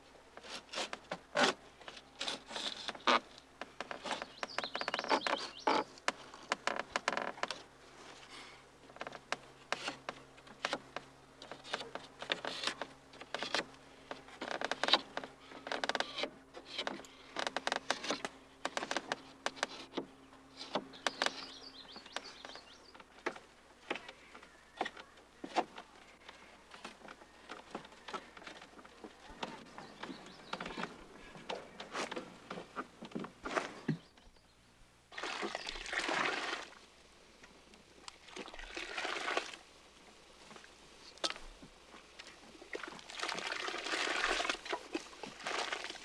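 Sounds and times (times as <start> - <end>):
wooden slats clicking and knocking: 9.0 - 24.2.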